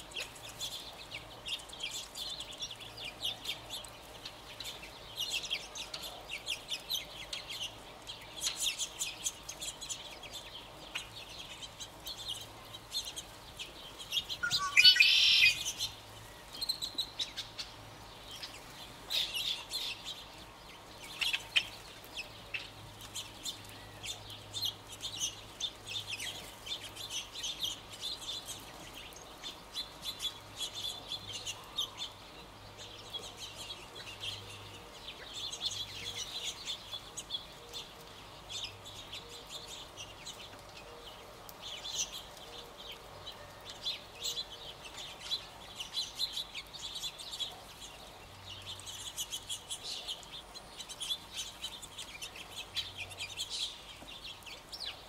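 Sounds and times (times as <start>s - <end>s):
quail rising call: 14.4s - 15.7s
quail chirping: 14.4s - 15.8s.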